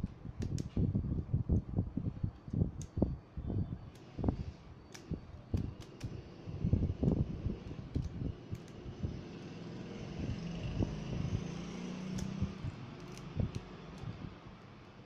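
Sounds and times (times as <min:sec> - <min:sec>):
steady low hum: 0:00.0 - 0:15.0
smartphone being handled: 0:04.8 - 0:06.2, 0:12.1 - 0:14.7.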